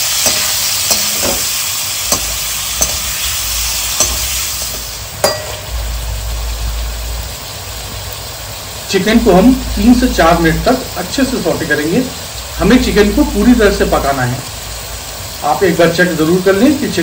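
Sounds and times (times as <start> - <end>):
metal spatula scraping a pan: 0.0 - 5.7
chicken sizzling in hot oil: 0.0 - 17.0.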